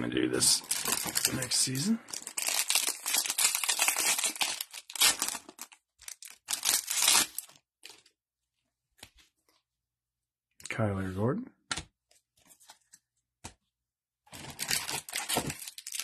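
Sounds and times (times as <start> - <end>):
foil wrapper tearing and crinkling: 0.6 - 8.1, 14.3 - 16.0.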